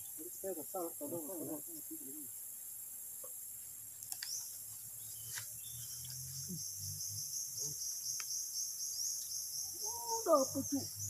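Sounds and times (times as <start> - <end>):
insects chirping chorus: 0.0 - 11.0
pulsing insect chirp: 0.0 - 11.0
faint clicks: 4.0 - 4.5.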